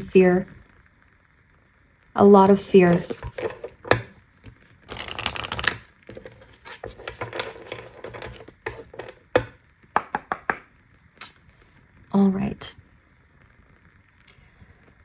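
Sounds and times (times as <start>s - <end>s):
cards being shuffled: 2.8s - 10.7s
cards tapping and sliding: 2.9s - 10.6s.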